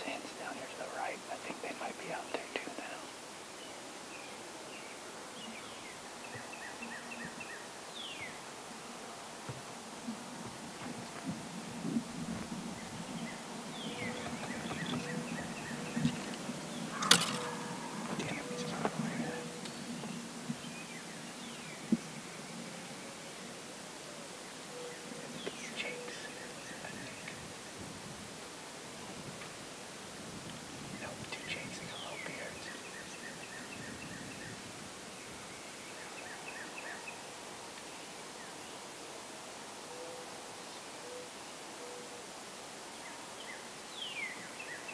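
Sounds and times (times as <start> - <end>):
small birds chirping: 0.0 - 27.8, 30.5 - 38.9
wild turkey calling: 13.2 - 20.2.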